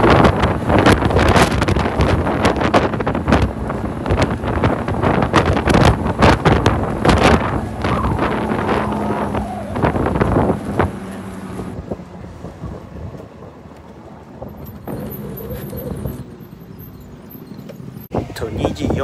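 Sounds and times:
wind buffeting microphone: 0.0 - 16.8, 18.0 - 19.0.

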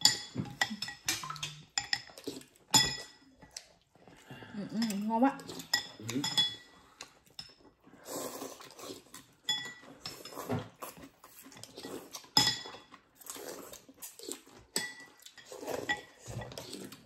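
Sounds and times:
spoons clinking on porcelain bowls: 0.0 - 3.2, 5.6 - 6.7, 9.5 - 10.4, 11.8 - 13.0, 14.8 - 16.4
noodles being slurped: 7.9 - 9.4.

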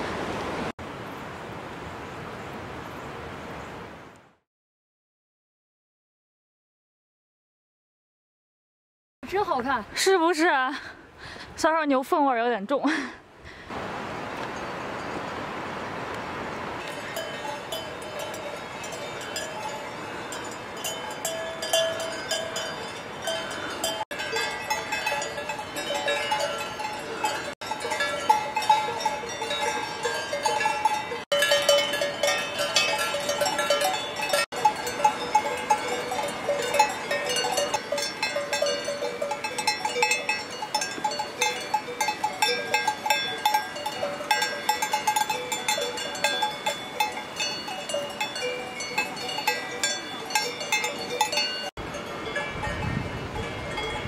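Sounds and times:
cowbells clanking: 16.8 - 54.0.

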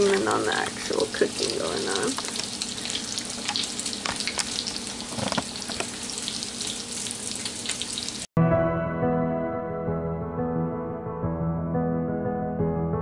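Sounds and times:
oil sizzling and crackling: 0.0 - 8.3.

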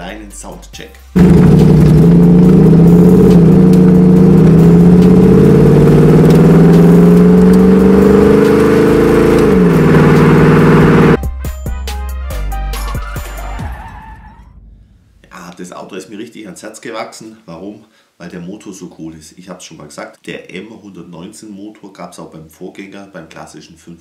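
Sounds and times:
car engine revving under load: 1.2 - 11.2.

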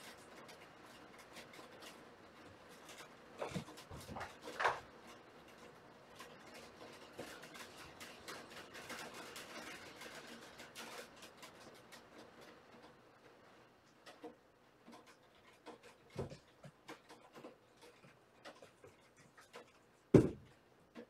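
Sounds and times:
claws scratching and scuffling: 0.0 - 12.9, 14.0 - 20.2
kittens landing with soft thumps: 20.1 - 20.5.

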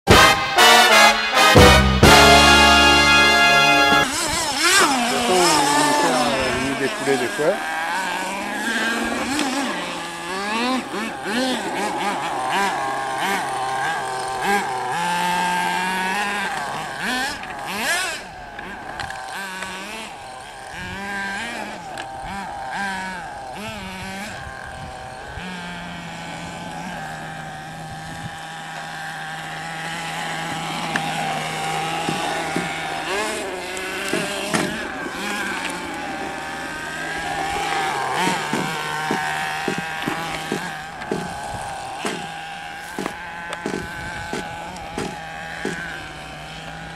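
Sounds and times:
small engines revving: 0.0 - 46.9
low steady drone: 0.1 - 15.8.

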